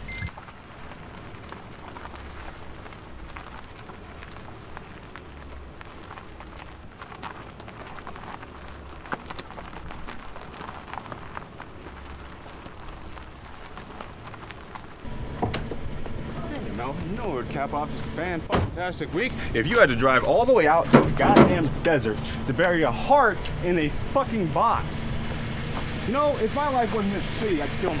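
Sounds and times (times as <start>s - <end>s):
low engine rumble: 0.0s - 28.0s
tyres crackling over dirt: 0.0s - 28.0s.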